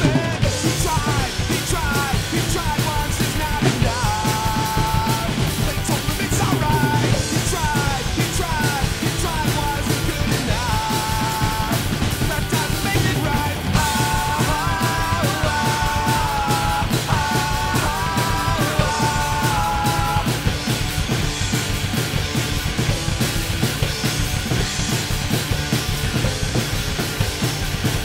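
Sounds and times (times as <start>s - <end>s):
shouted sung vocals: 0.0s - 20.5s
drum kit playing hard: 0.0s - 28.0s
punk rock song: 0.0s - 28.0s.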